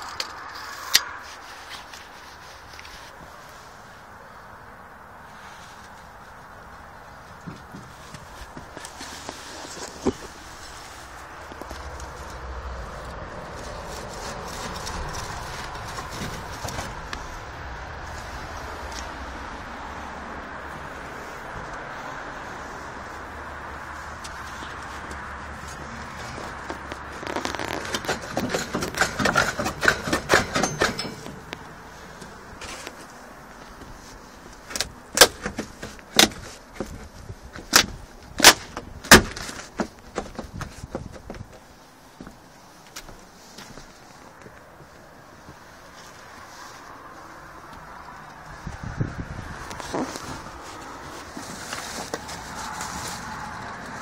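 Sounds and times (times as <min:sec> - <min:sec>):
low outdoor rumble: 0:00.0 - 0:54.0
boot footsteps on wooden decking: 0:07.2 - 0:10.8, 0:39.6 - 0:45.7.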